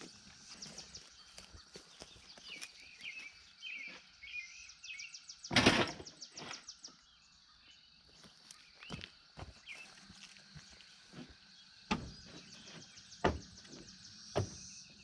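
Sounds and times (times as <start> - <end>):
birds chirping and singing: 0.0 - 15.0
steel posts clattering down: 5.5 - 6.1.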